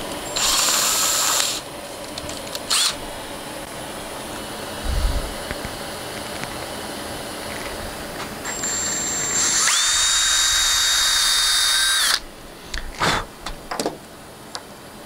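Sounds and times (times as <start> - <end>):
cordless drill whining: 0.2 - 1.7, 2.3 - 3.1, 8.4 - 12.3.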